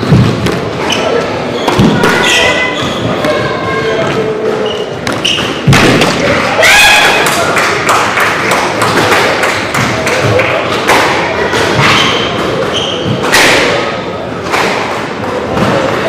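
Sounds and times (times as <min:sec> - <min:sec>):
squash ball hits: 0:00.0 - 0:00.8, 0:01.6 - 0:03.5, 0:05.0 - 0:07.4, 0:08.8 - 0:16.0
shoe squeaks on wooden floor: 0:00.8 - 0:05.7, 0:11.8 - 0:13.2.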